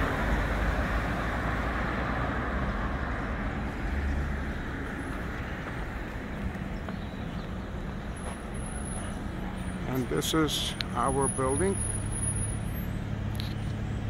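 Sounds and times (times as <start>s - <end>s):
rumble of passing cars: 0.0s - 14.0s.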